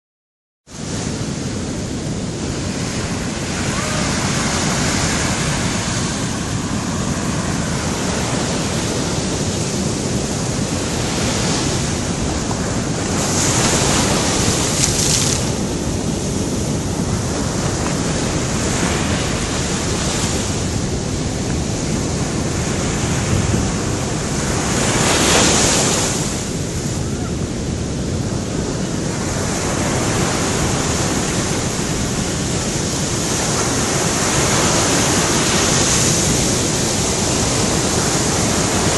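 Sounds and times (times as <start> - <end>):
ocean surf washing up beach: 0.7 - 38.9
wave crashes: 2.4 - 27.4.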